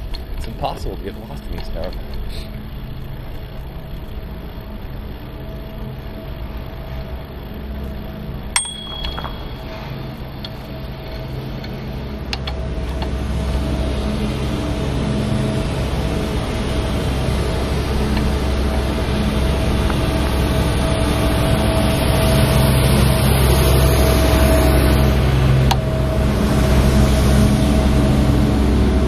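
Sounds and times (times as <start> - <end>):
bicycle rattling over brick paving: 0.0 - 12.0
street traffic: 0.0 - 29.0
wind: 0.0 - 29.0
metallic ding: 8.6 - 10.2.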